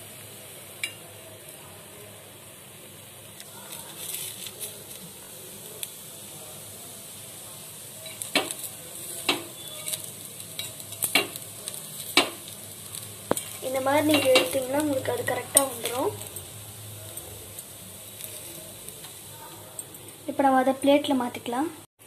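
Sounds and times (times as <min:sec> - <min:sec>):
food sizzling in oil: 0:00.0 - 0:21.9
metal spoon clinking on pan: 0:09.2 - 0:11.4, 0:13.3 - 0:14.8.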